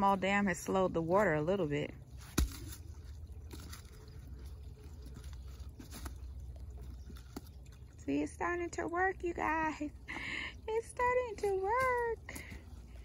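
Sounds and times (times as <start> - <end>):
stones knocking: 2.2 - 4.0.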